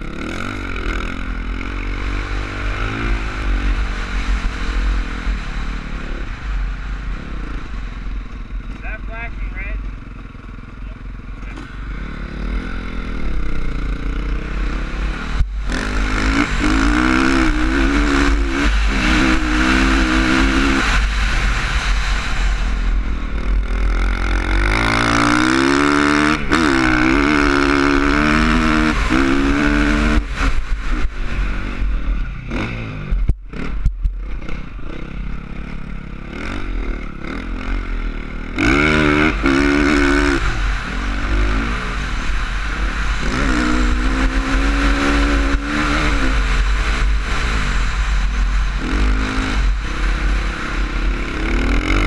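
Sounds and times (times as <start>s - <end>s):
dirt bike engine revving: 0.0s - 52.0s
wind rumble on microphone: 38.6s - 52.0s.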